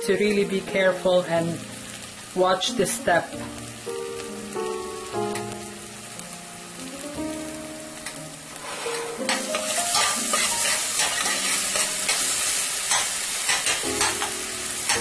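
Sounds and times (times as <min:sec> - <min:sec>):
garlic sizzling in hot oil: 0:00.0 - 0:15.0
spoon scraping a pan: 0:08.6 - 0:14.3.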